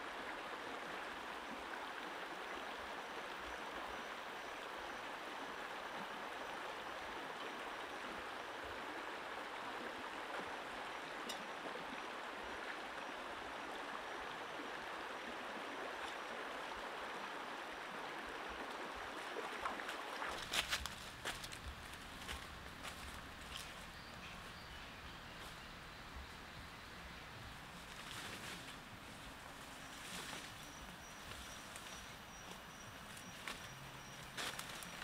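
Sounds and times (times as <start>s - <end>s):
stream rushing over rocks: 0.0s - 23.9s.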